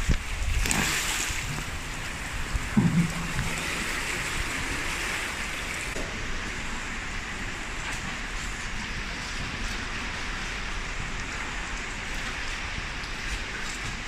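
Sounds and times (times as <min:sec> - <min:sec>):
river water rushing through culvert: 0:00.0 - 0:14.0
dull knock: 0:02.7 - 0:03.6.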